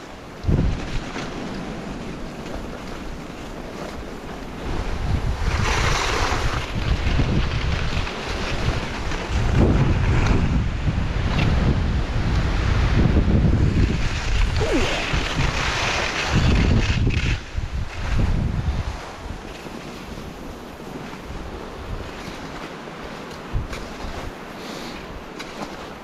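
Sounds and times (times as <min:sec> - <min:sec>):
wind buffeting microphone: 0:00.0 - 0:25.4
skis hissing over snow: 0:05.5 - 0:06.7, 0:13.8 - 0:16.7, 0:24.5 - 0:25.1.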